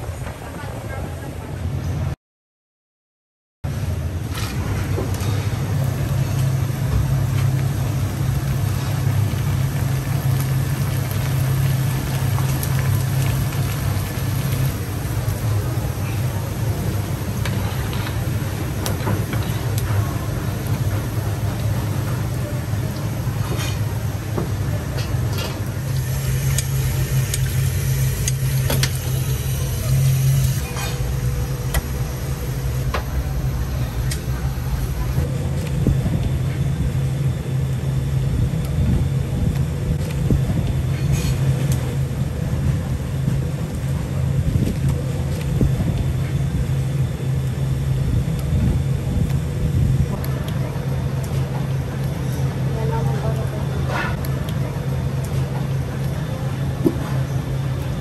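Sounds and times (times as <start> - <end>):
low mechanical hum: 3.7 - 58.0
oil sizzling and crackling: 5.6 - 35.6
low drone: 25.0 - 43.8.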